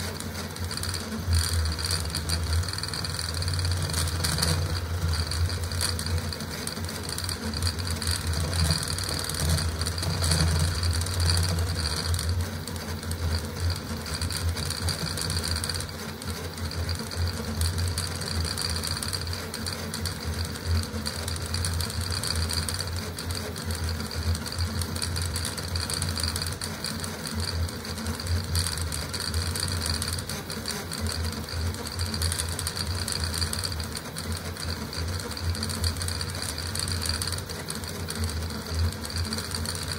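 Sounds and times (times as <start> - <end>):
printer motors buzzing and chattering: 0.0 - 39.9.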